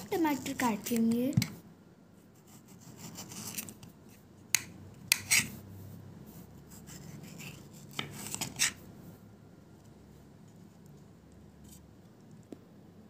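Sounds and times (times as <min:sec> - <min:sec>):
knife slicing a tomato: 0:04.5 - 0:05.6.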